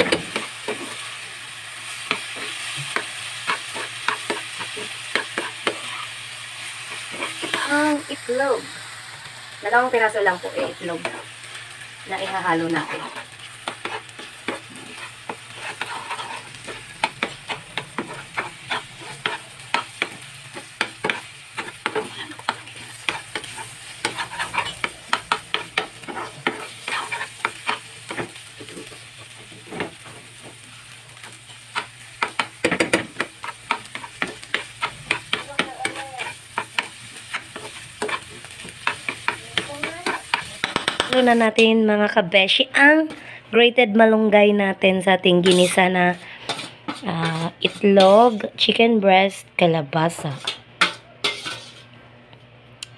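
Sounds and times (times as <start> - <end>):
spatula scraping frying pan: 0.0 - 1.2, 1.9 - 6.1, 6.8 - 7.9, 12.1 - 30.6, 31.2 - 41.5, 45.4 - 48.5, 50.2 - 51.9
food sizzling: 0.0 - 43.4, 44.4 - 48.9, 50.0 - 51.9.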